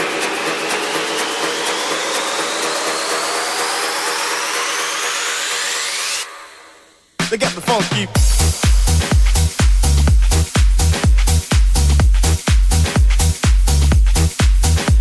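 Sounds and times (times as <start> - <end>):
white-noise riser: 0.0 - 6.9
synth tones sweeping upward: 1.0 - 6.8.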